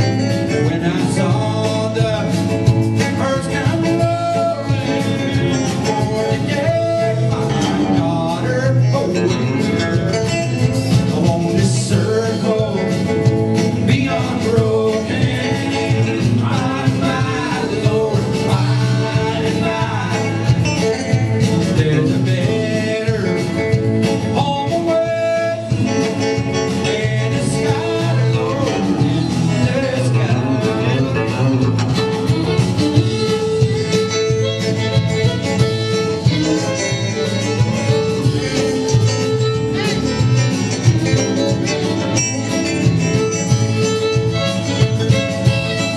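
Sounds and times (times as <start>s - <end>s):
drums: 0.0s - 45.9s
electric guitar: 0.0s - 45.9s
man singing lead: 0.0s - 45.9s
strummed acoustic guitar: 0.0s - 45.9s.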